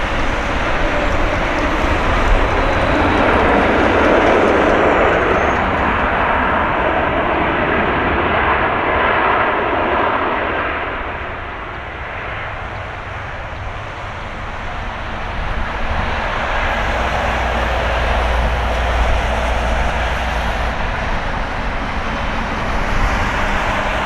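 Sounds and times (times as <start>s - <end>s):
jet engines rushing: 0.0s - 24.0s.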